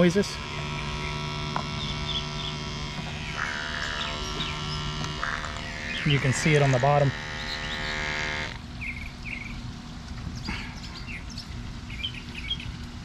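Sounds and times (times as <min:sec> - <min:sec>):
small motor humming: 0:00.0 - 0:08.6
birds chirping: 0:00.0 - 0:13.0.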